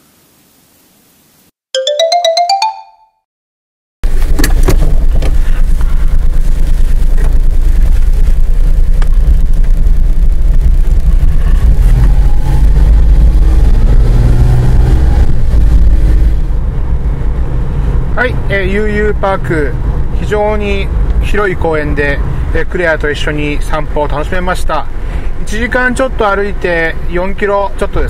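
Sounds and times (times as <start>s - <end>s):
rising electronic jingle: 1.8s - 3.2s
vehicle engine and road rumble: 4.0s - 28.0s.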